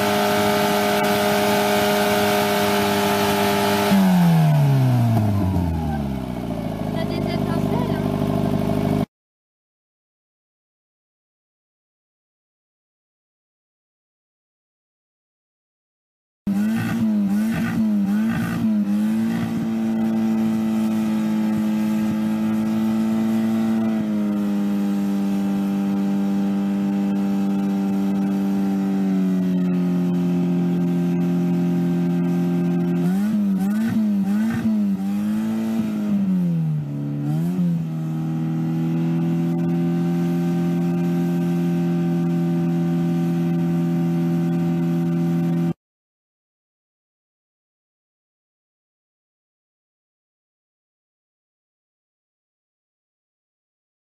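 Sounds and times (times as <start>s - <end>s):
car engine at high revs: 0.0s - 9.1s, 16.5s - 45.8s.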